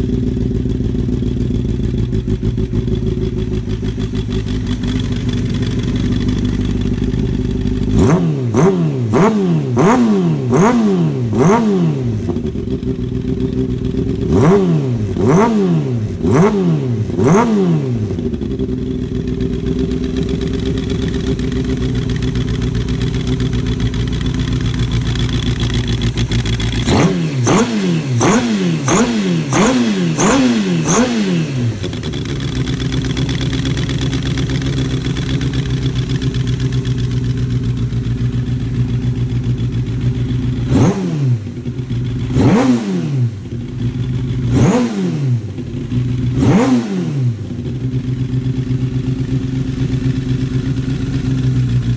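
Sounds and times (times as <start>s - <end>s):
motorcycle engine idling: 0.0s - 51.9s
engine revving: 7.9s - 36.9s, 40.6s - 51.7s.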